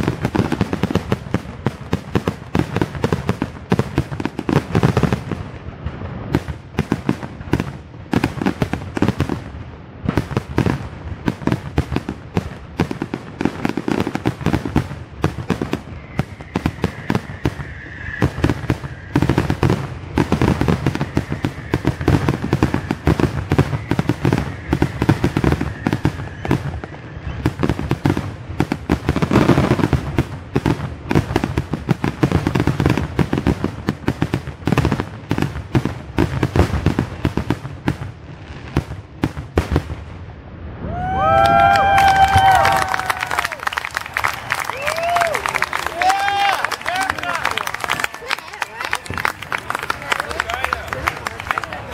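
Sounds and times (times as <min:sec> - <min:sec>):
fireworks bursts and pops: 0:00.0 - 0:51.9.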